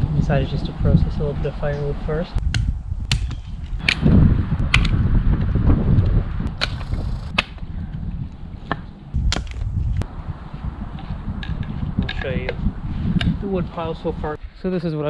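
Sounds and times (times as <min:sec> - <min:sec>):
wind rumble on microphone: 0:00.0 - 0:15.0
axe chopping wood: 0:02.5 - 0:04.0, 0:06.6 - 0:07.6, 0:08.6 - 0:09.6.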